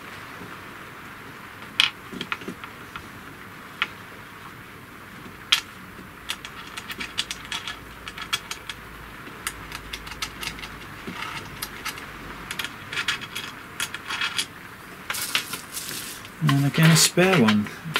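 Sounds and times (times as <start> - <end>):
small metal screws clicking: 6.3 - 8.8, 9.4 - 14.5.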